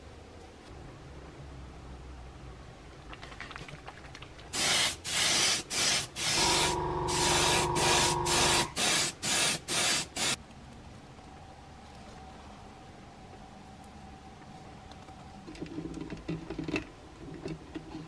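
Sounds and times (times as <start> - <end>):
airbrush spraying: 4.6 - 10.4.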